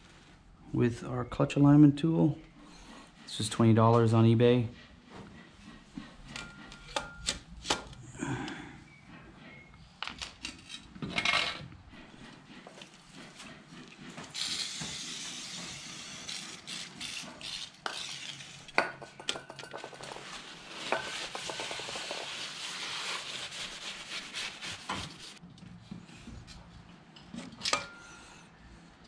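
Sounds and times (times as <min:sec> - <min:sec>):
aerosol spray hissing: 0:14.4 - 0:16.4.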